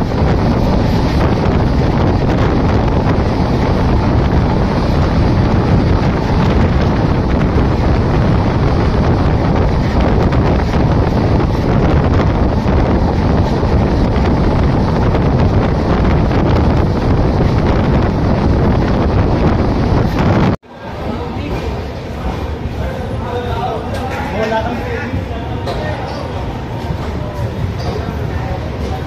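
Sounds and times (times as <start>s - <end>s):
wind buffeting microphone: 0.0s - 20.6s
train running noise: 0.0s - 29.0s.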